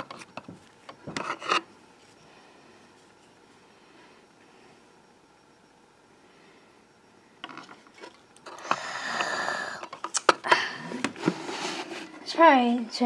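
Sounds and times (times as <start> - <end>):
toys rustling and scraping on table: 1.1 - 1.7, 11.0 - 12.5.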